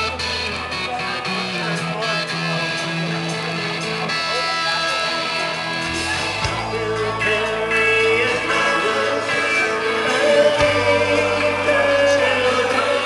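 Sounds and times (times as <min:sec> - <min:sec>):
guitar and bass: 0:00.0 - 0:13.0
live band amplified music: 0:00.0 - 0:13.0
person singing melody: 0:06.0 - 0:13.0.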